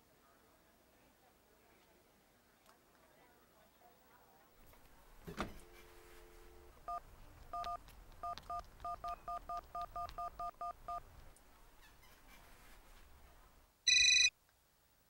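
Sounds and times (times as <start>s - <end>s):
touch-tone key beeps: 6.9s - 11.0s
dial tone: 13.9s - 14.3s.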